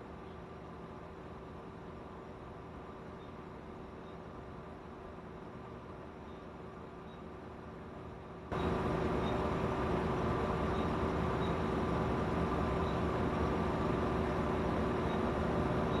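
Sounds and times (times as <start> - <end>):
vehicle engine droning: 8.5 - 16.0.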